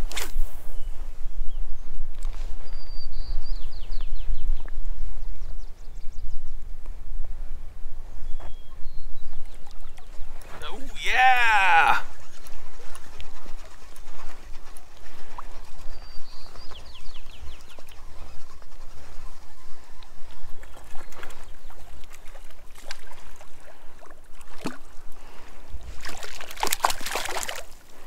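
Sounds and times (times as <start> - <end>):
wind rumble on microphone: 0.0 - 10.6, 12.1 - 22.6
water lapping: 20.6 - 28.0
fish thrashing and splashing: 26.0 - 27.8.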